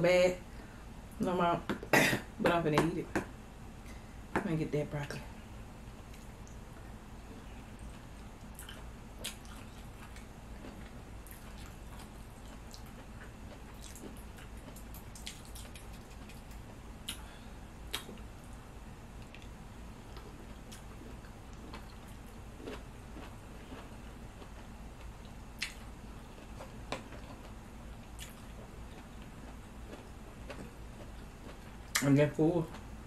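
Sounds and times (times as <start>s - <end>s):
steady low hum: 0.0s - 33.0s
chewing and wet mouth sounds: 6.1s - 18.6s, 19.2s - 32.9s
mouth clicks and smacks: 25.6s - 25.9s.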